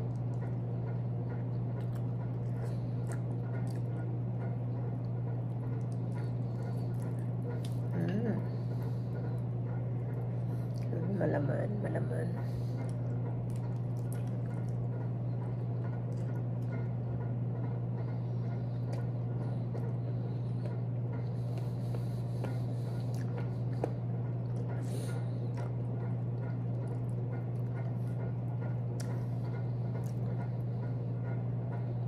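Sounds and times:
steady low hum: 0.0s - 32.0s
wet chewing and sucking: 1.7s - 4.2s, 5.5s - 9.5s, 10.1s - 10.9s, 12.5s - 17.0s, 18.0s - 30.6s.

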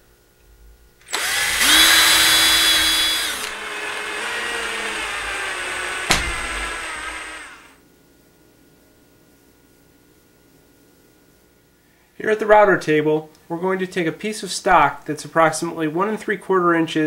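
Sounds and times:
cordless drill motor whine: 1.0s - 7.8s
sharp click: 6.1s - 6.6s.

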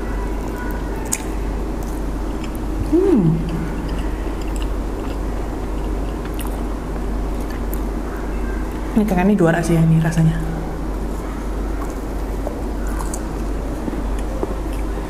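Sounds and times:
woman chewing food: 0.0s - 8.8s, 10.9s - 15.0s
steady low hum: 0.0s - 15.0s
woman humming mm: 2.8s - 3.8s.

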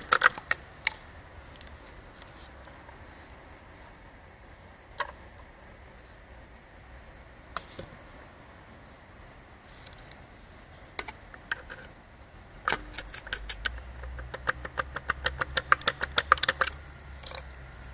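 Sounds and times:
metallic clicks of turbo wheel: 12.6s - 17.6s.

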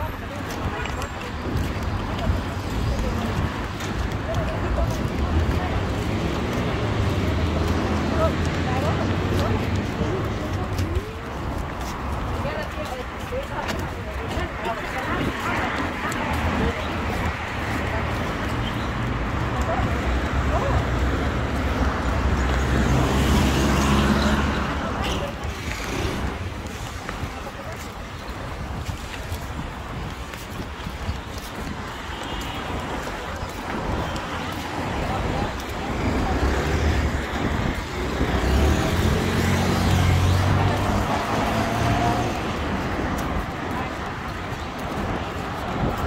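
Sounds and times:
street traffic: 0.0s - 46.0s.

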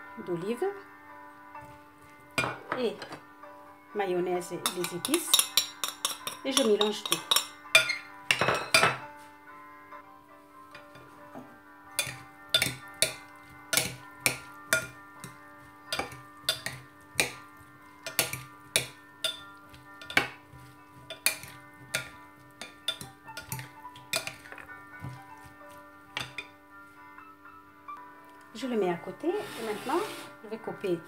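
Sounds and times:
quiet background music: 0.0s - 31.0s
salad servers clacking on bowl: 4.7s - 7.9s, 12.0s - 25.2s.

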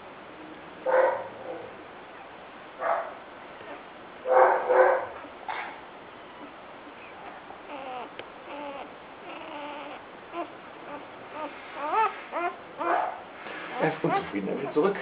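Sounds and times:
puppy whimpering: 3.6s - 3.9s, 6.2s - 15.0s.

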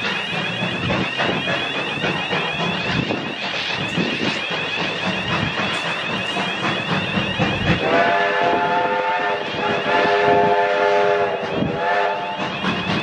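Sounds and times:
moving train rumble: 0.0s - 13.0s
steam locomotive whistle blasts: 0.0s - 13.0s.

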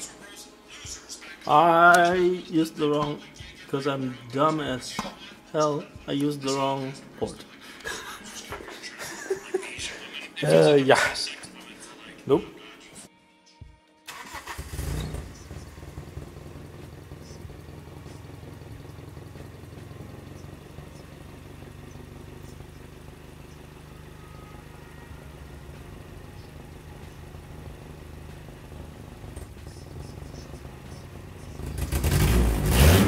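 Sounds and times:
car engine starting and idling: 14.1s - 33.0s.

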